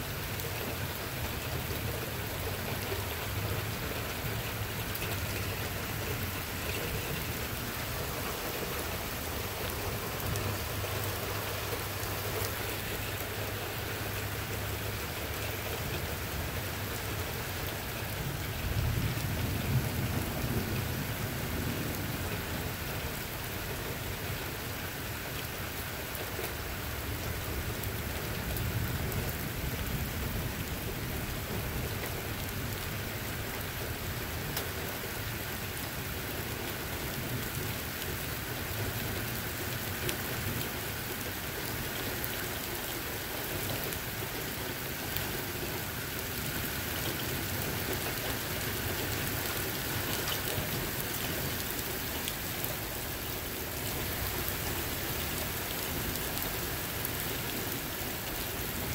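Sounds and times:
steady rain falling: 0.0 - 58.9
low rumble of thunder: 16.9 - 24.6, 27.2 - 35.0.

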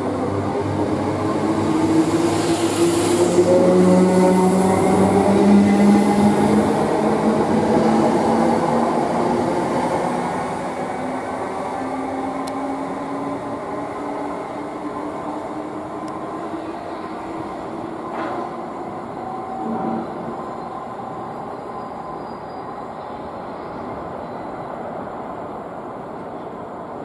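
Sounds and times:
wheel and rail noise: 0.0 - 24.6.

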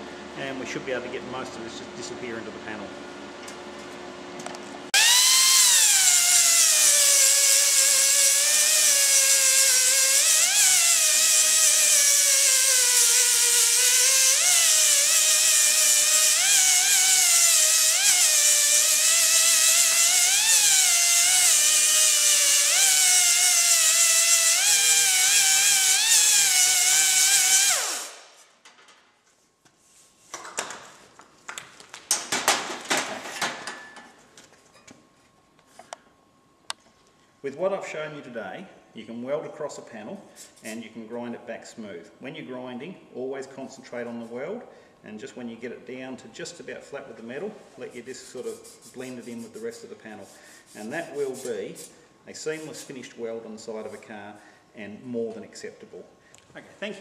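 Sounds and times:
angle grinder grinding metal: 5.0 - 28.4.

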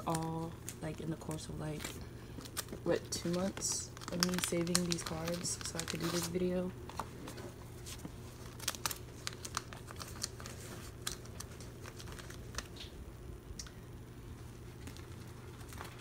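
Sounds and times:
plastic sleeve crinkling and clicking: 0.0 - 7.4, 8.0 - 13.0.

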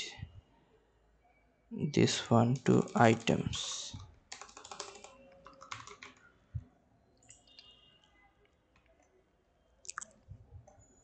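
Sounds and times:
typing on computer keyboard: 2.5 - 6.3.

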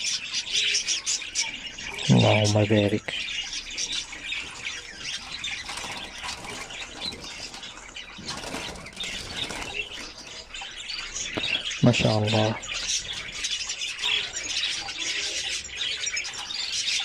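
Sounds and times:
budgerigars chattering and chirping: 0.0 - 17.0
wings fluttering: 4.3 - 11.7.

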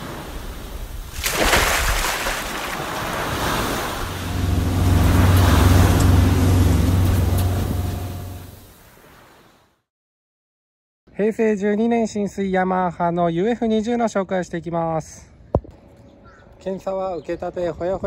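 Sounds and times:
waves and surf washing: 0.0 - 9.7
motorboat engine running: 3.9 - 8.7.

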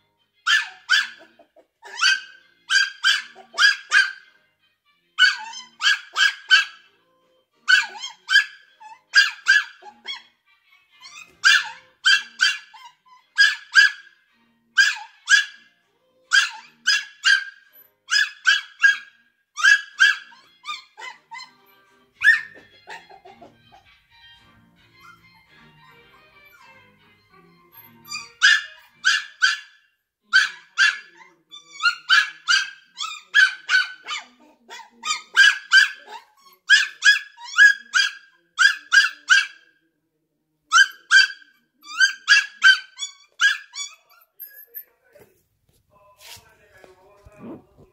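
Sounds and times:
puppy yapping: 0.5 - 4.2, 5.2 - 6.8, 7.7 - 10.3, 11.0 - 14.1, 14.8 - 15.7, 16.3 - 21.6, 22.2 - 23.9, 27.9 - 39.6, 40.7 - 44.8.

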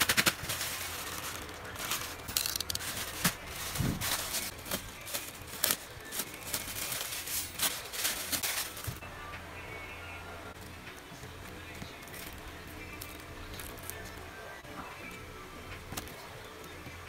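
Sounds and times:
plastic mailer bag crinkling: 0.0 - 9.0.

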